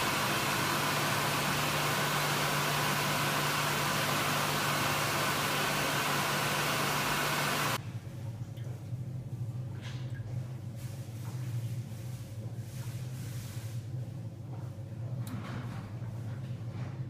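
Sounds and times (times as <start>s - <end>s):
hand dryer blowing air: 0.0s - 7.8s
low motor hum: 0.0s - 7.8s.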